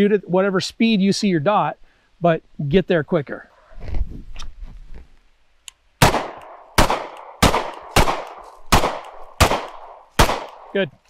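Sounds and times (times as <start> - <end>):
handgun shots with echo: 6.0 - 10.7.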